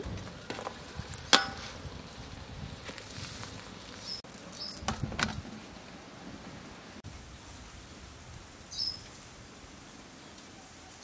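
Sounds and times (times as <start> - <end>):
high bird chirps: 8.7 - 9.0.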